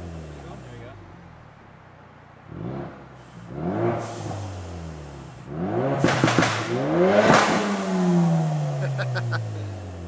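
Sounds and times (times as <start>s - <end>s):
car engine revving: 2.4s - 10.0s
exhaust pops and crackles: 6.0s - 7.6s.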